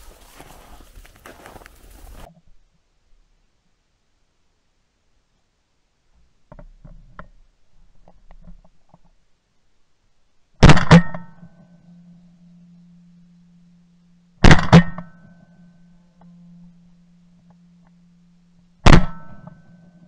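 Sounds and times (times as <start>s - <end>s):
steady low hum: 9.1s - 20.0s
shotgun blasts: 10.6s - 11.3s, 14.4s - 15.1s, 18.8s - 19.5s.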